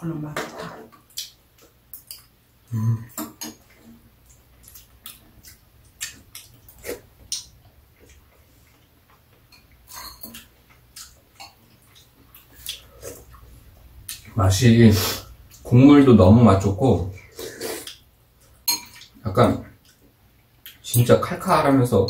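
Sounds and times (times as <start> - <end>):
low voiced hum: 2.7 - 3.2
spoons clinking against bowls: 9.5 - 10.5, 18.6 - 19.2.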